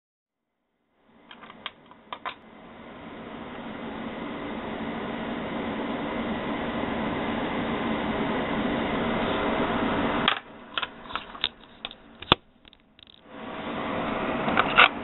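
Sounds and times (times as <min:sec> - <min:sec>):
steady hissing noise: 0:01.0 - 0:14.8
metal cartridges clicking and tapping: 0:10.3 - 0:13.2.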